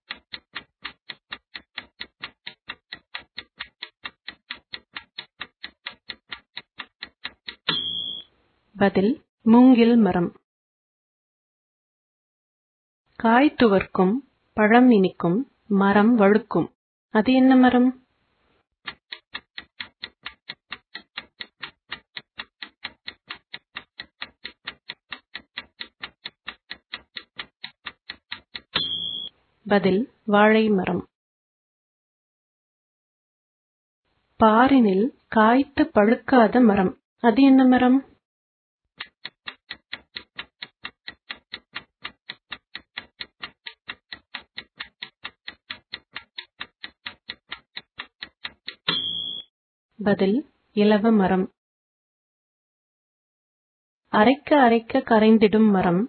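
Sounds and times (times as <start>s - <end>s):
clock ticking: 0.1s - 8.2s, 18.8s - 29.3s, 39.0s - 49.4s.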